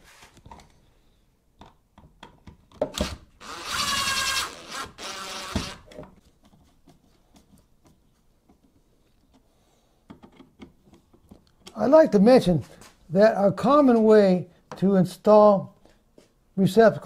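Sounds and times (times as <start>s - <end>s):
high-pitched screw squeal: 3.4s - 5.8s.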